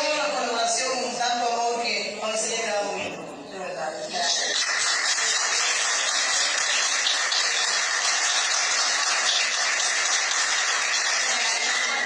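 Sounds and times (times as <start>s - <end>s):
people clapping: 4.1s - 12.0s.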